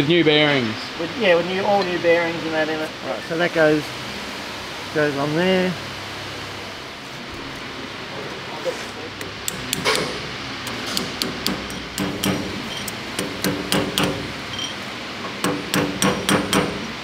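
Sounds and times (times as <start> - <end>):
hammer tapping on metal: 9.2 - 16.9.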